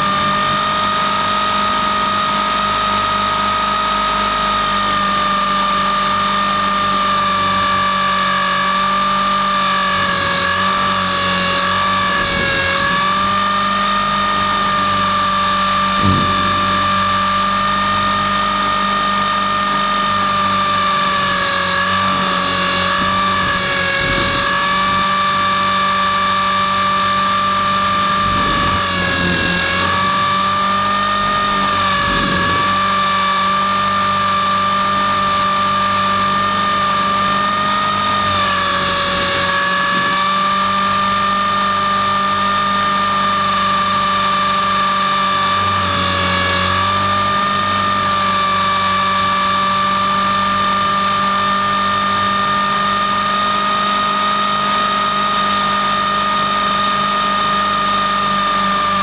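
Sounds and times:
rc helicopter motor whine: 0.0 - 59.0
rushing air: 21.9 - 33.5.

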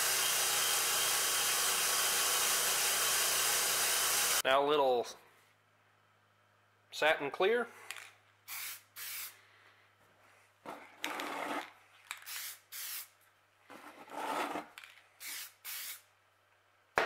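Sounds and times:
aerosol spray hissing: 8.5 - 9.4, 12.3 - 13.1, 15.2 - 16.0.

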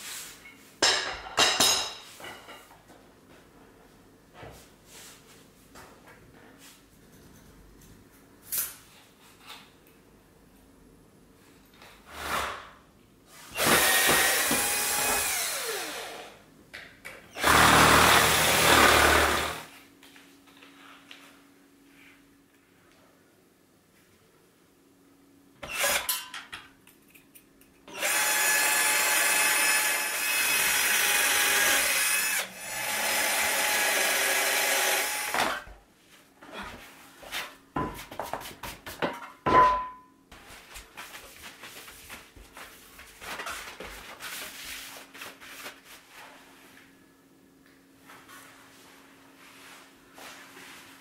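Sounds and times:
cordless drill whining: 13.6 - 16.4, 17.4 - 19.7, 25.6 - 26.0, 27.9 - 35.6.

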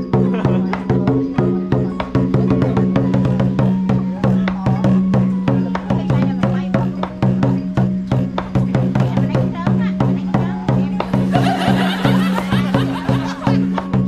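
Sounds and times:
drum beaten with sticks: 0.0 - 14.0.

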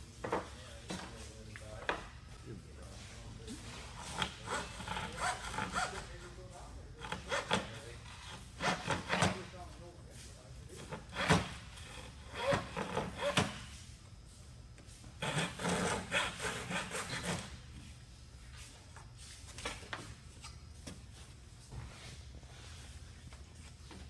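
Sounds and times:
rasping strokes on wood: 3.8 - 6.2, 15.2 - 17.5.

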